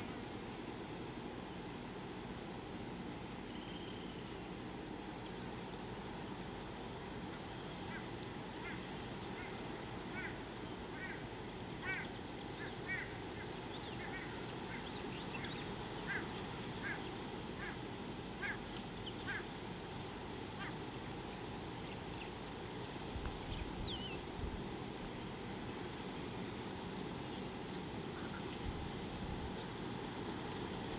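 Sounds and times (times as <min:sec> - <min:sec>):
low outdoor background noise: 0:00.0 - 0:30.9.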